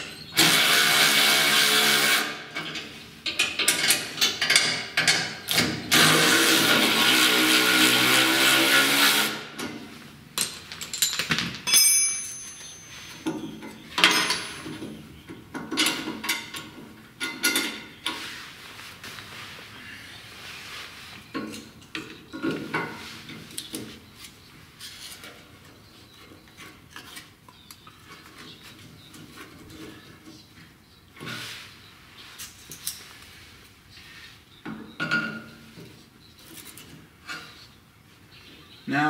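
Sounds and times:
metal clicks and knocks: 0:02.6 - 0:05.7, 0:13.2 - 0:18.2.

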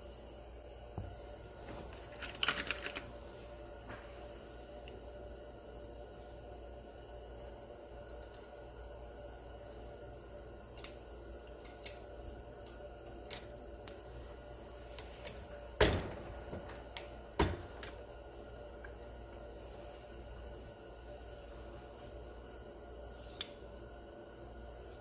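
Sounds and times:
small metal clicks: 0:10.7 - 0:14.0.

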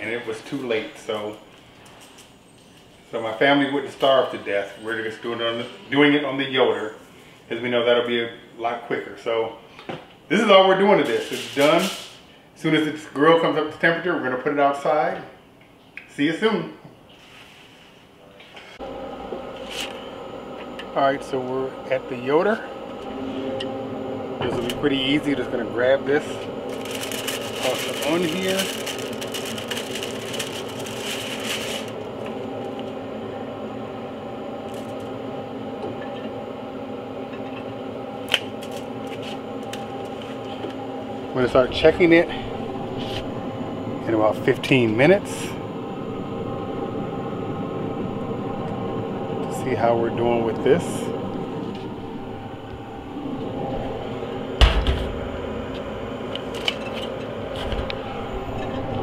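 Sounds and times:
grill fan humming: 0:00.0 - 0:59.0
aluminium foil crinkling: 0:26.2 - 0:32.8, 0:34.7 - 0:35.1, 0:38.2 - 0:40.5
heavy knock: 0:54.6 - 0:55.3.

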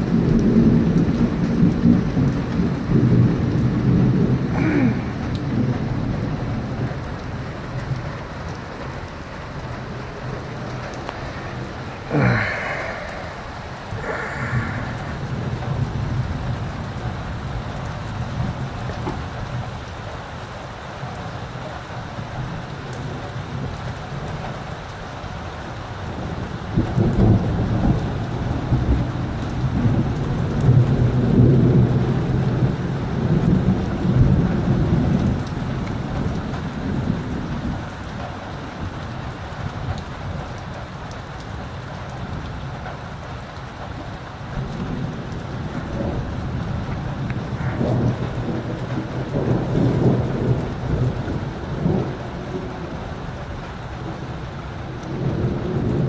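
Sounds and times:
rolling thunder: 0:00.0 - 0:08.9, 0:09.6 - 0:17.7, 0:44.6 - 0:53.4
steady rain falling: 0:00.0 - 0:56.0.

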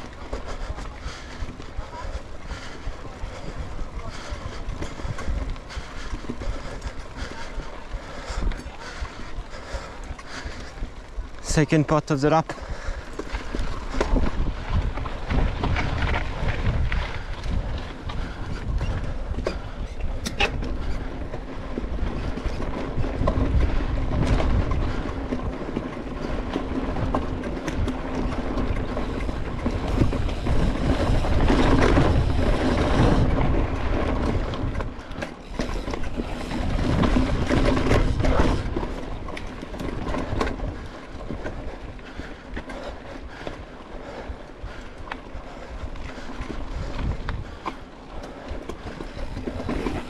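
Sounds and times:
bike rattling over bumps: 0:00.0 - 0:50.0.

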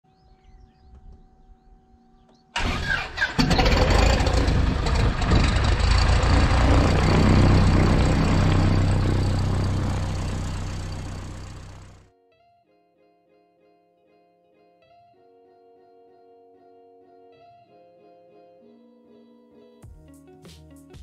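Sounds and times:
aircraft engine starting and running: 0:02.6 - 0:12.0.

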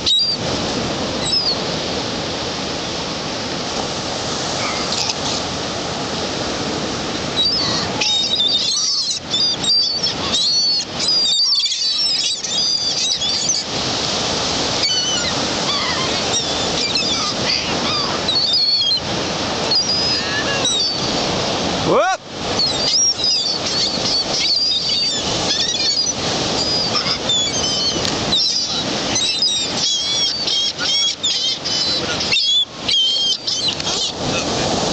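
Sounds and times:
ocean surf breaking: 0:00.0 - 0:34.9
high chirping bird calls: 0:07.4 - 0:13.7, 0:22.6 - 0:34.2.

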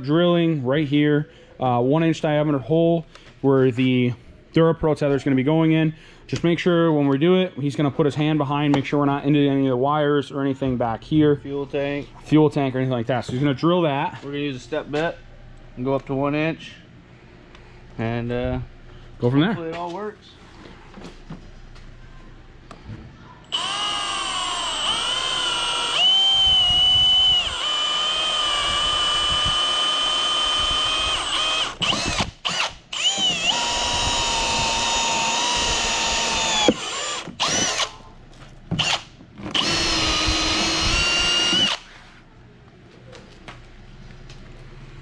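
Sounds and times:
cordless drill whining: 0:23.5 - 0:37.9, 0:38.8 - 0:41.9.

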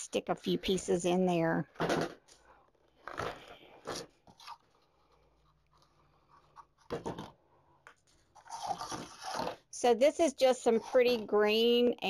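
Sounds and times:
ribbon rustling and scraping: 0:01.8 - 0:09.7.

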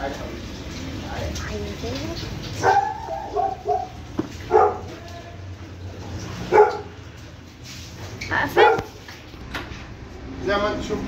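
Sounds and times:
dog barking: 0:02.6 - 0:05.0, 0:06.4 - 0:07.0, 0:08.6 - 0:09.0.

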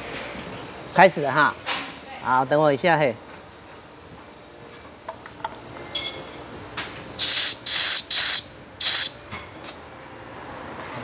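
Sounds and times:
compressed air hissing: 0:07.2 - 0:09.8.

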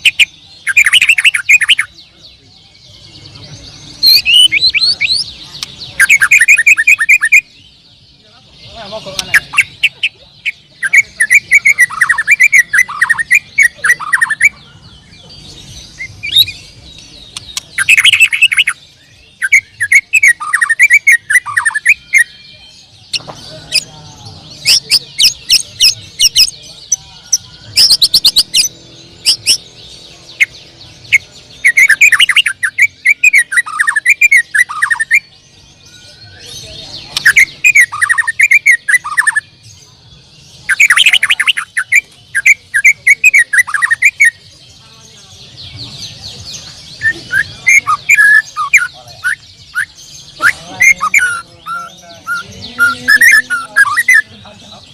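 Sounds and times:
bird high chattering notes: 0:00.0 - 0:02.2, 0:02.9 - 0:07.6, 0:08.6 - 0:39.8, 0:45.6 - 0:54.9
songbird whistled phrases: 0:00.0 - 0:02.2, 0:04.0 - 0:07.6, 0:16.0 - 0:23.8, 0:31.1 - 0:39.5, 0:40.6 - 0:44.5, 0:46.2 - 0:54.3.

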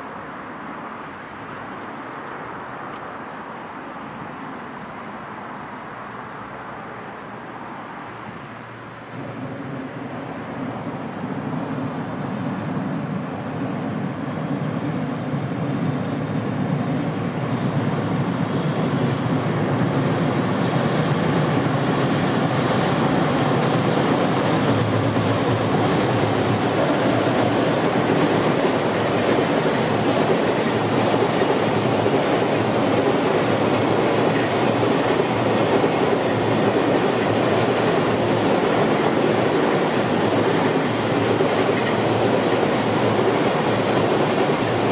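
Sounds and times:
freight train crossing steel bridge: 0:00.0 - 0:44.9.

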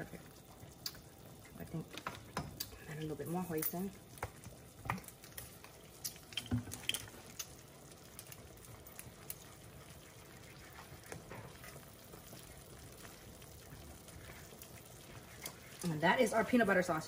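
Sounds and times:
spoon stirring thick sauce: 0:04.0 - 0:16.6.

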